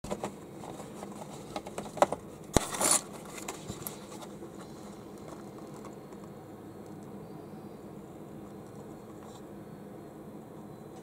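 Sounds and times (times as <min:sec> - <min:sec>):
box scraping and rustling: 0:00.1 - 0:06.0.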